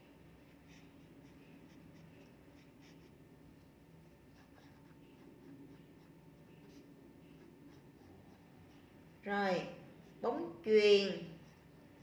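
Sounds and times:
pen scratching on paper: 0.5s - 9.2s.

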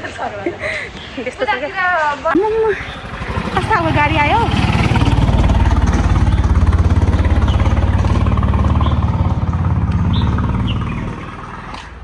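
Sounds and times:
motor engine chugging: 2.4s - 12.0s.

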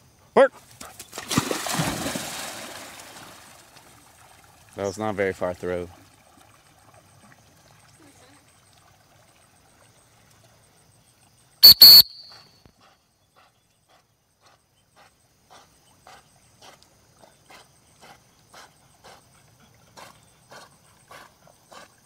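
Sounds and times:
dog swimming: 0.6s - 11.0s, 12.8s - 22.0s
dog whistle blasts: 11.6s - 12.6s.

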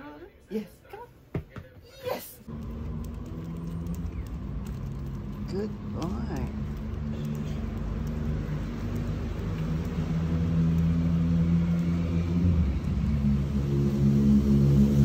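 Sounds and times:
engine humming: 2.4s - 15.0s.

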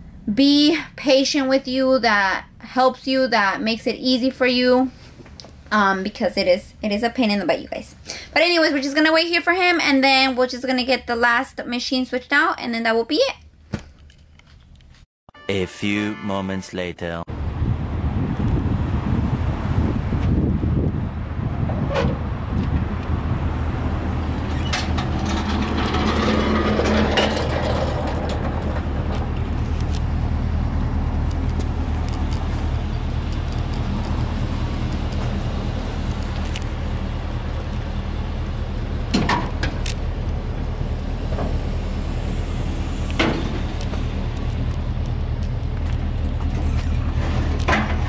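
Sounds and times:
truck engine idling: 22.2s - 48.0s
metal knocks and clunks: 24.4s - 29.6s, 39.1s - 39.8s, 46.4s - 48.0s.

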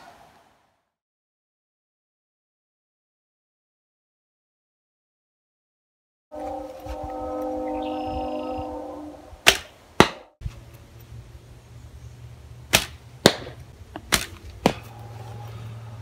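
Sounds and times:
arrow striking target: 9.4s - 10.3s, 12.7s - 14.9s.

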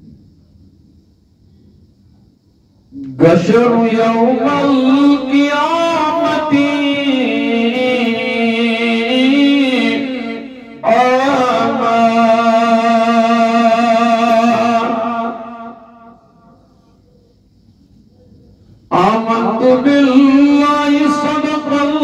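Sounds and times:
man chanting: 3.0s - 16.8s, 18.9s - 22.0s.

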